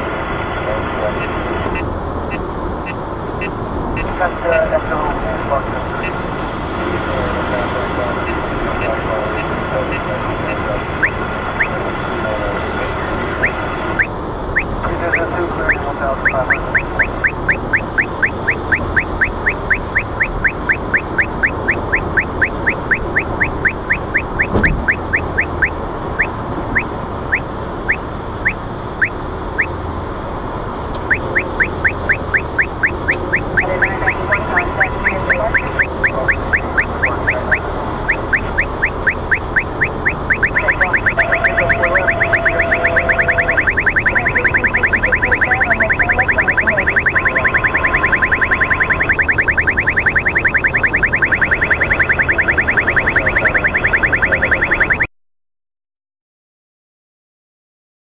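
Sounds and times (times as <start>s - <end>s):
road noise in car cabin: 0.0s - 55.1s
radar detector rising chirps: 8.0s - 12.6s, 13.3s - 29.8s, 31.0s - 55.1s.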